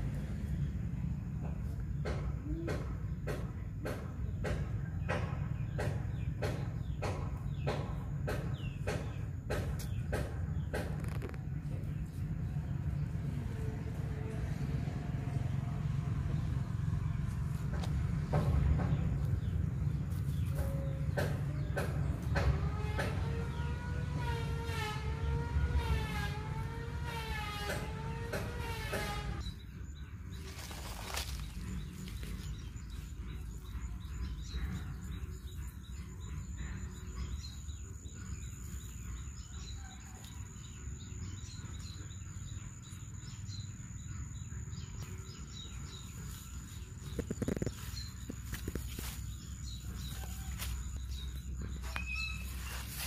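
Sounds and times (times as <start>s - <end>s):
steady low rumble: 0.0s - 22.5s, 29.3s - 53.0s
birds chirping: 0.0s - 53.0s.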